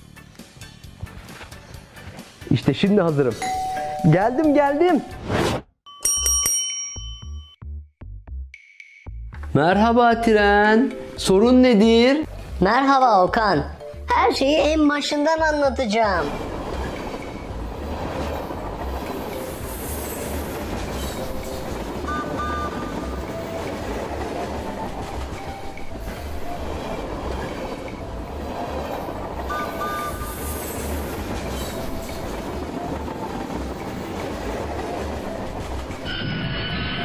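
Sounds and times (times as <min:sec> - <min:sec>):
train wheels clattering: 0:16.1 - 0:36.1.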